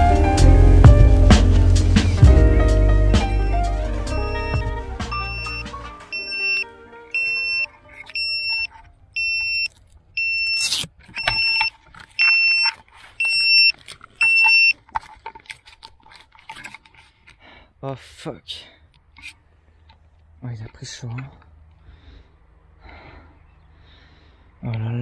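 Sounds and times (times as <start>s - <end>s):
short high beeps: 4.3s - 6.6s, 7.2s - 14.7s.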